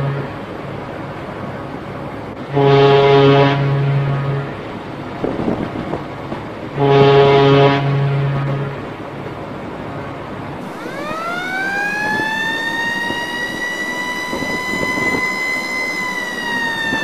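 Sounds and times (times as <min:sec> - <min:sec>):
deep horn note: 0:00.0 - 0:00.4, 0:02.5 - 0:04.7, 0:06.7 - 0:09.0
siren wailing: 0:10.6 - 0:17.0.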